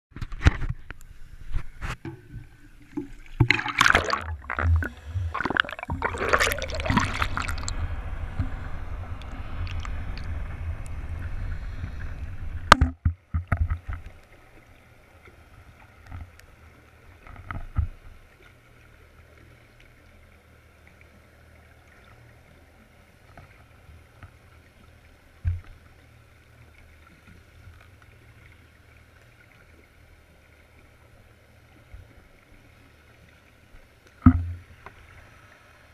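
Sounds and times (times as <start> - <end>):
small underwater knocks: 0.1 - 7.7, 12.6 - 14.4, 17.2 - 18.1, 25.4 - 25.8, 34.1 - 35.0
muffled underwater hum: 0.2 - 35.9
wind on microphone: 4.3 - 13.0.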